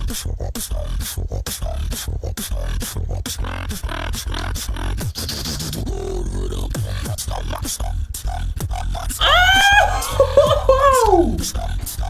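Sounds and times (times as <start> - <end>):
beatbox snare-like clicks: 0.0 - 5.9
beatbox deep bass line: 0.0 - 12.0.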